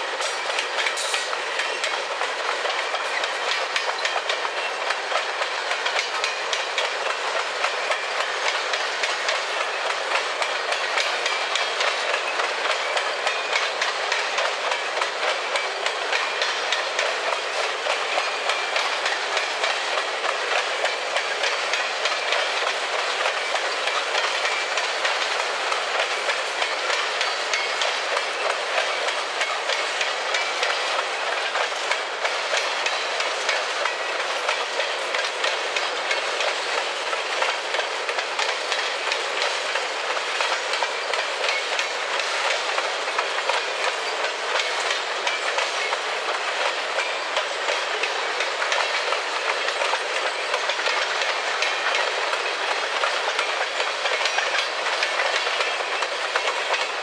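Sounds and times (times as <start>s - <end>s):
freight train wheels on rails: 0.0s - 57.0s
wheels clicking over rail joints: 0.0s - 57.0s.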